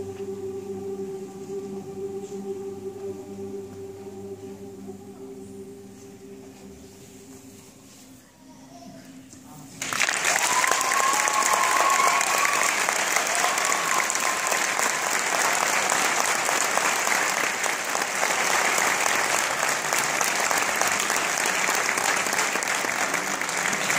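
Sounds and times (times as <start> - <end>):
audience applauding: 9.8 - 23.9.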